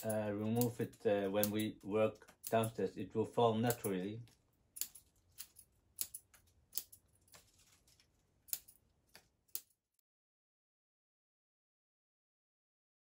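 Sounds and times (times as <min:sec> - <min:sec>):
scissors snipping leaves: 0:00.0 - 0:01.8, 0:03.6 - 0:04.0, 0:04.8 - 0:07.8, 0:08.5 - 0:09.8.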